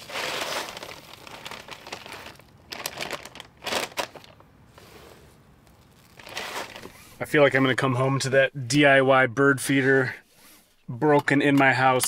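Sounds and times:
plastic bag crinkling: 0:00.0 - 0:04.5, 0:05.6 - 0:07.2.

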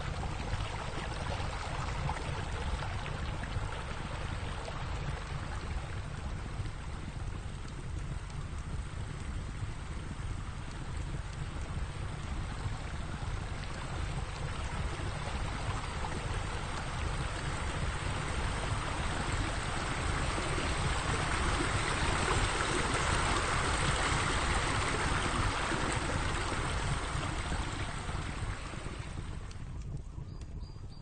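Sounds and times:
steady rushing noise: 0:00.0 - 0:29.8.

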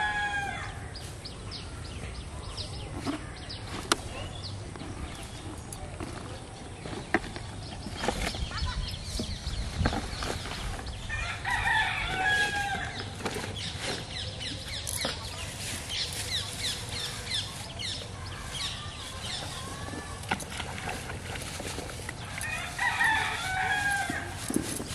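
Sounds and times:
birds chirping: 0:00.0 - 0:24.9
rooster crowing: 0:22.5 - 0:24.4.

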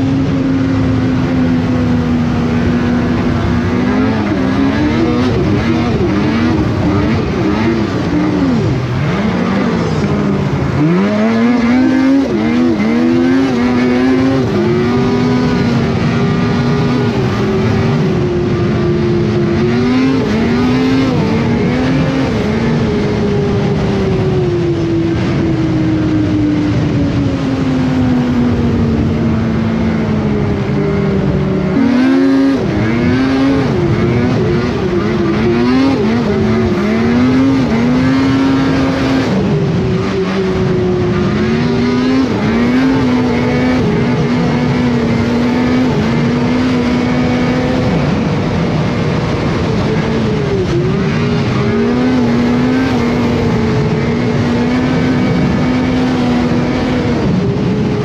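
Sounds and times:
snowmobile engine running: 0:00.0 - 0:58.0
wind and track noise: 0:00.0 - 0:58.0.

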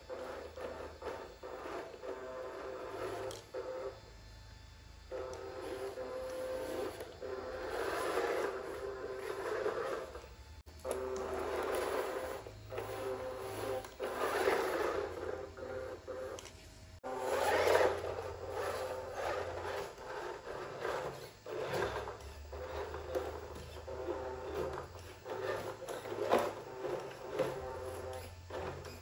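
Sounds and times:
electric motor whining: 0:00.0 - 0:29.0.

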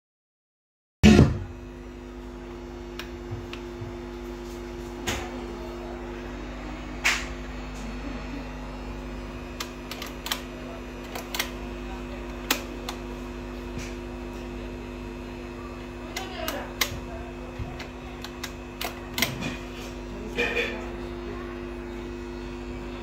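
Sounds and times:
record player electrical hum: 0:01.0 - 0:23.0
control sliders clicking: 0:09.6 - 0:11.6.

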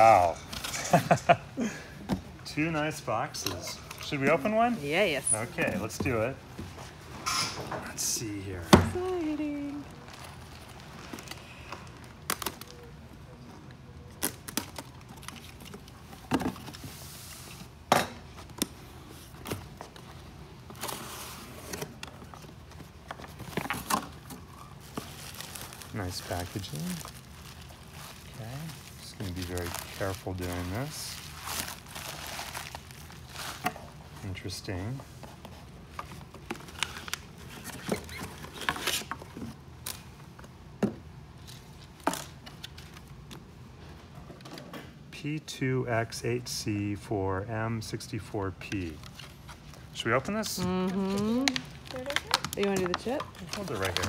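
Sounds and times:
foil bag crinkling: 0:24.6 - 0:33.6, 0:51.0 - 0:54.0.

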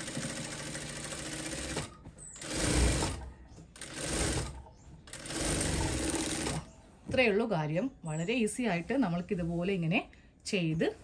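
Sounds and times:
sewing machine stitching: 0:00.0 - 0:06.7.

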